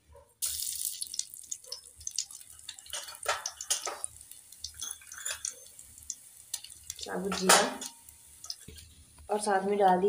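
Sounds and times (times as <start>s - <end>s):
seeds sizzling in hot oil: 0.4s - 9.6s
seeds crackling and popping: 0.4s - 10.0s.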